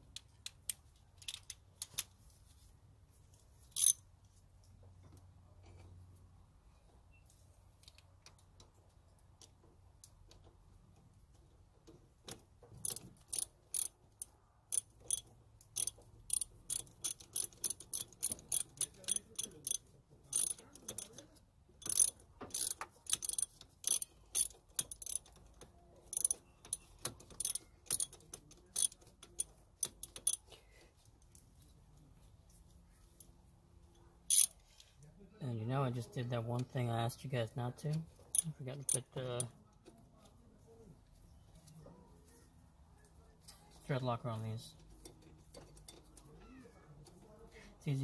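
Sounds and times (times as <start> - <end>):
ratchet wrench clicking: 0.1 - 2.1, 3.7 - 4.0, 12.3 - 21.2, 21.8 - 30.5, 34.3 - 34.6.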